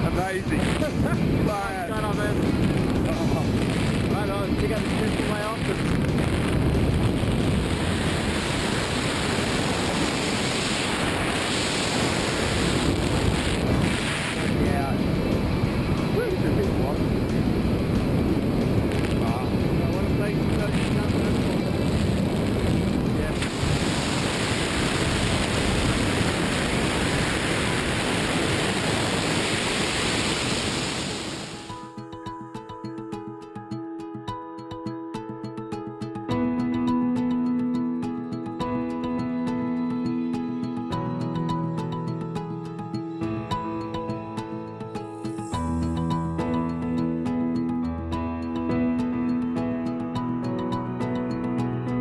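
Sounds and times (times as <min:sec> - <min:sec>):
wind roaring over microphone: 0:00.0 - 0:31.8.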